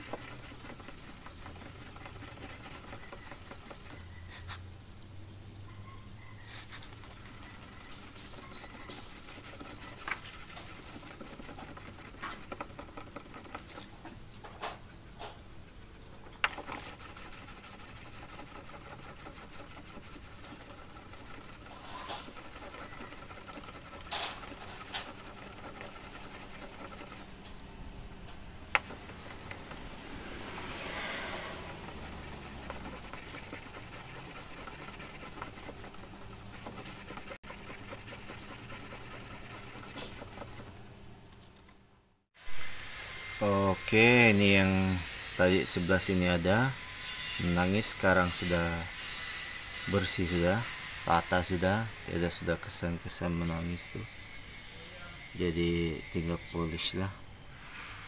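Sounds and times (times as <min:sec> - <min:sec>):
sanding block scratching paint: 0:00.0 - 0:04.7, 0:06.2 - 0:14.1, 0:16.3 - 0:27.3, 0:28.7 - 0:40.8, 0:43.4 - 0:54.1.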